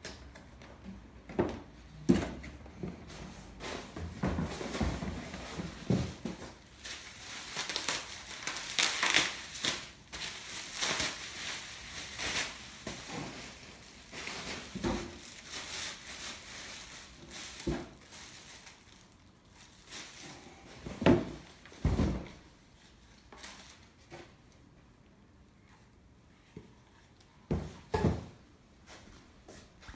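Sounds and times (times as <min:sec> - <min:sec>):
plastic bag crinkling: 0:05.3 - 0:20.6.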